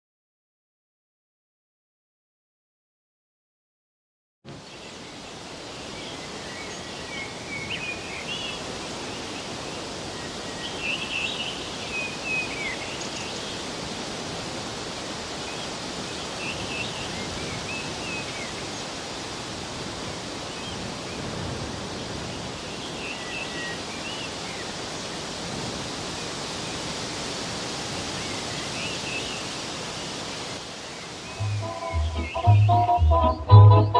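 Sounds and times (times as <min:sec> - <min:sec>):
small birds chirping: 0:30.8 - 0:33.9.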